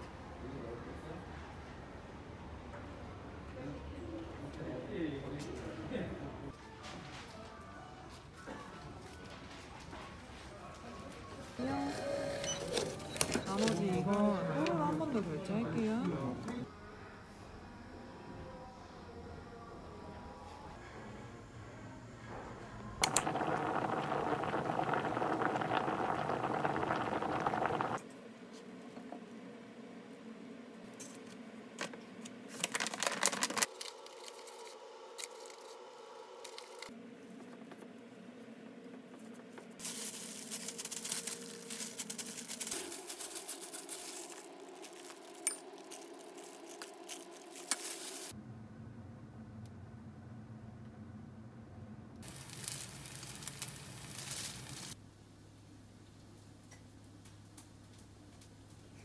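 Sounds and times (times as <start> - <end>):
water boiling in a pot: 23.0 - 28.0, 52.2 - 55.0
plastic gloves crinkling: 39.8 - 48.4, 52.2 - 55.0.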